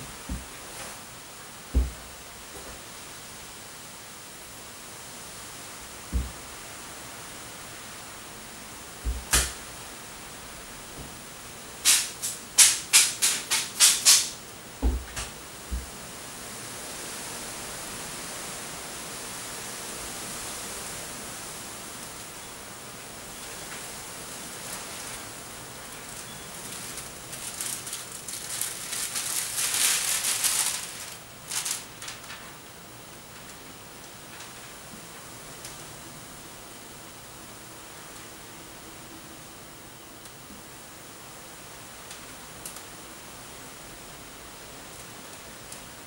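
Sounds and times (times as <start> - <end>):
steady low hiss: 0.0 - 46.0.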